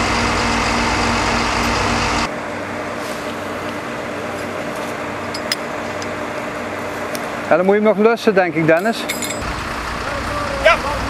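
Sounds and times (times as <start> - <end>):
vehicle engine idling: 0.0 - 5.3, 9.3 - 11.0.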